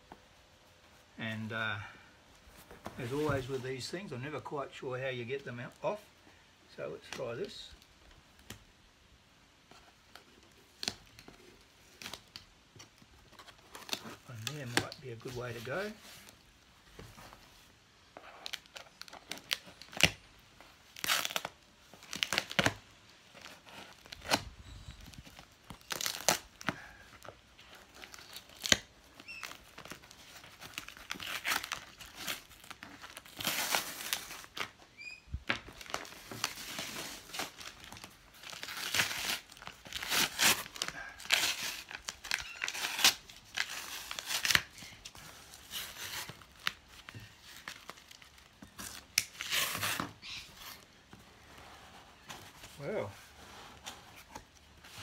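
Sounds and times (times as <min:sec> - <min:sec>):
crinkling and scraping: 0:02.4 - 0:04.2, 0:09.7 - 0:20.2, 0:35.6 - 0:55.0
tape ripping off cardboard: 0:18.4 - 0:20.2, 0:20.8 - 0:22.8, 0:23.4 - 0:27.0, 0:27.6 - 0:34.8, 0:35.5 - 0:50.8.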